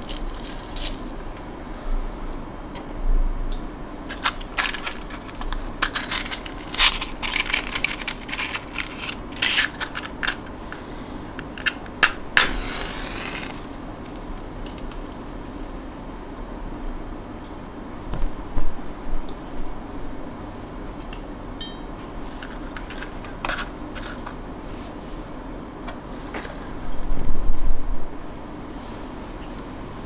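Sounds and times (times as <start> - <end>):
matchbox rattling: 0.0 - 1.1, 4.1 - 10.8, 11.4 - 14.8, 22.4 - 24.4
match struck flaring with hiss: 12.3 - 15.0.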